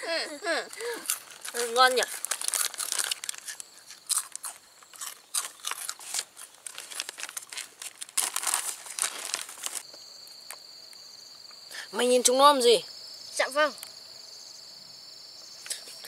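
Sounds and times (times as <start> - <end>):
high insect trill: 0.0 - 16.0
crunchy snacks being chewed: 0.7 - 9.9
foil snack packets crinkling: 0.7 - 9.9.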